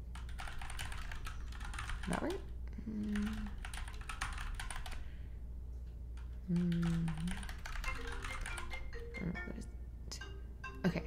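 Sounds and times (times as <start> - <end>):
low steady buzz: 0.0 - 11.0
typing on a keyboard: 0.1 - 2.4, 3.0 - 5.0, 6.2 - 9.0
phone ringtone: 7.7 - 11.0.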